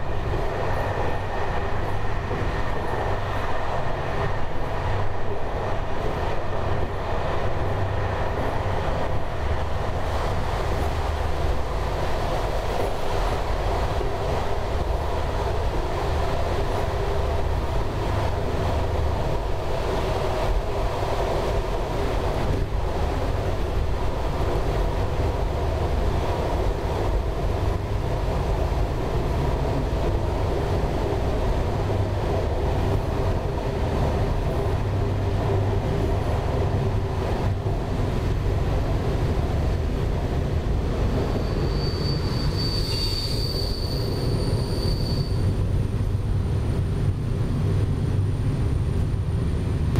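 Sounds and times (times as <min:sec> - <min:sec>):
train wheels rumbling on rails: 0:00.0 - 0:49.9
high squeal: 0:41.2 - 0:45.5.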